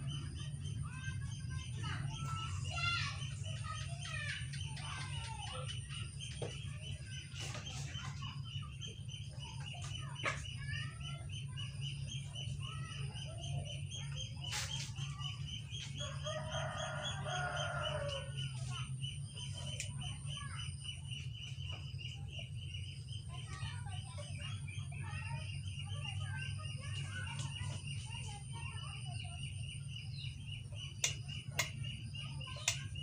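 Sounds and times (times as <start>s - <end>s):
chickens clucking: 0.0s - 33.0s
sharp clicks: 31.0s - 32.0s, 32.6s - 33.0s.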